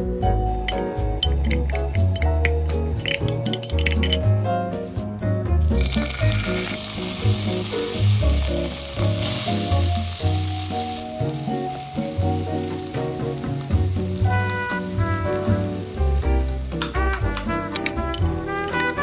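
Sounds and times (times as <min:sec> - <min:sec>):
soft background music: 0:00.0 - 0:19.0
hot oil sizzling in a pan: 0:05.6 - 0:19.0.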